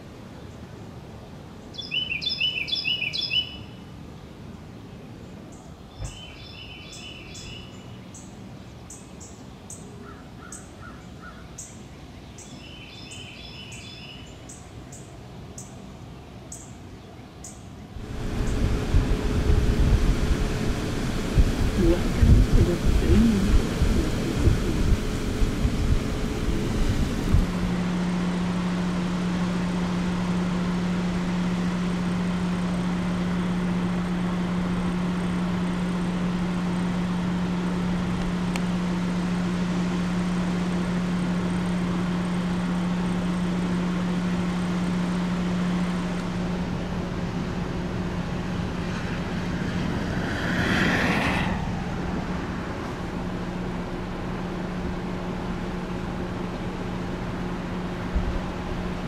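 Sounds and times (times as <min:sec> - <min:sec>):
steady low hum: 0:15.0 - 0:59.0
gusty wind rushing: 0:18.0 - 0:27.8, 0:48.7 - 0:53.7
vehicle swooshing past: 0:48.7 - 0:53.7.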